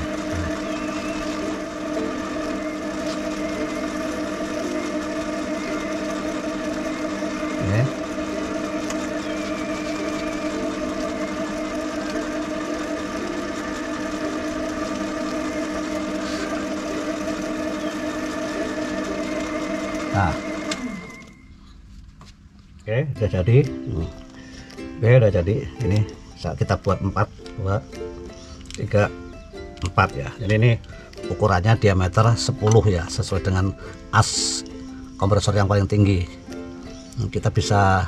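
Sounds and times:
chisel cutting workpiece: 0.0s - 21.3s
metal lathe running: 0.0s - 21.4s, 29.8s - 38.0s.

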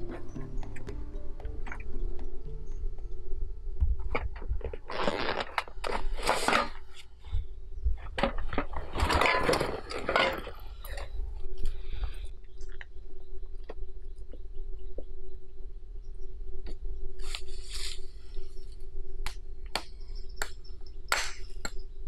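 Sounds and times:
rustling dry forest litter: 17.1s - 18.9s.

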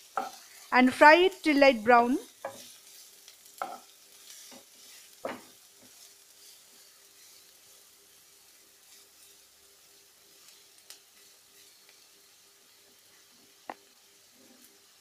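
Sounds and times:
onions sizzling in oil: 0.0s - 15.0s
spatula scraping pan: 2.3s - 8.0s.

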